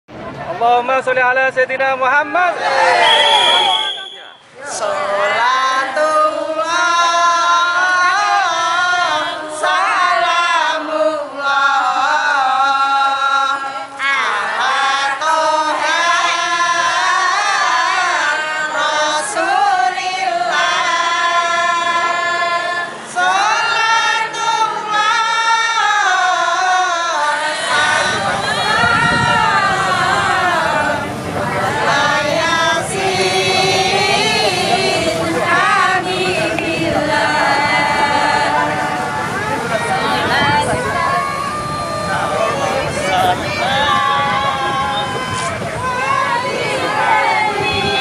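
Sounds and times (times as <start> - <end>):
group singing devotional chant: 2.5 - 48.0.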